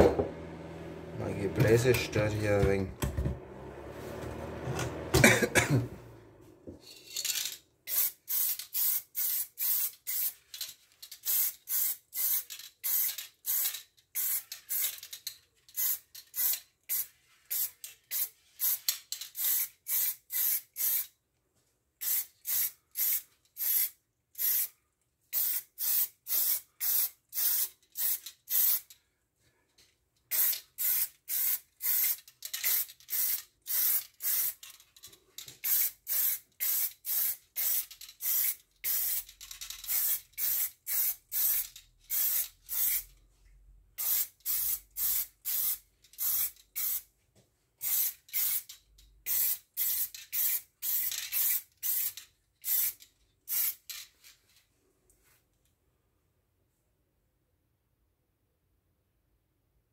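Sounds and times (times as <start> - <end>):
spray paint hissing in bursts: 7.9 - 10.4, 11.2 - 15.0, 15.8 - 21.1, 22.0 - 24.7, 25.3 - 28.9, 30.3 - 34.6, 35.6 - 43.1, 44.0 - 47.1, 47.8 - 48.7, 49.3 - 53.9.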